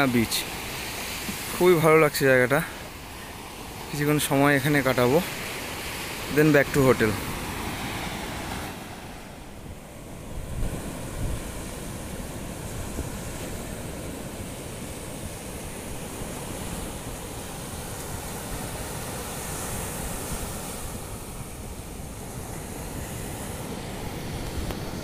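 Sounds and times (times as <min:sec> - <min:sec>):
waves breaking on beach: 0:00.0 - 0:25.0
wind buffeting microphone: 0:09.7 - 0:25.0.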